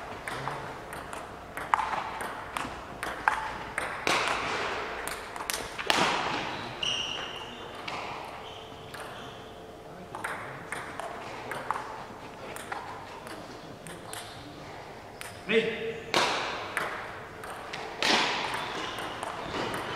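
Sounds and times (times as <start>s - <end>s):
table tennis ball clicking: 0.2s - 6.1s, 8.9s - 9.5s, 10.1s - 12.0s, 12.6s - 14.3s, 15.2s - 15.4s, 16.2s - 19.9s.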